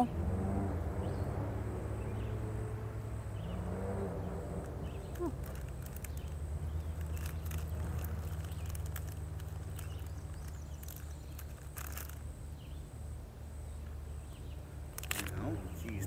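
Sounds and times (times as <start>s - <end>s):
clicks and rustles handling food: 5.1s - 12.2s, 14.9s - 16.0s.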